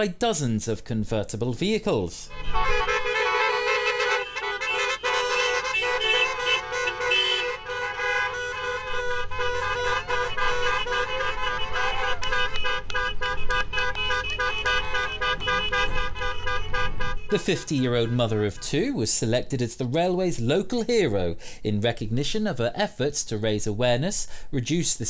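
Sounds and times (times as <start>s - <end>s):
car horns honking: 2.3s - 19.1s.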